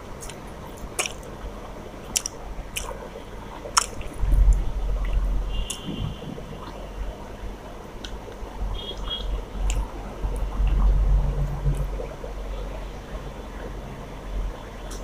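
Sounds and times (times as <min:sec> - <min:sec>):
close chewing: 0:00.0 - 0:05.9
fingers squishing food on plate: 0:00.2 - 0:01.4, 0:02.1 - 0:03.0, 0:03.6 - 0:04.2
mouth clicks: 0:00.2 - 0:06.8.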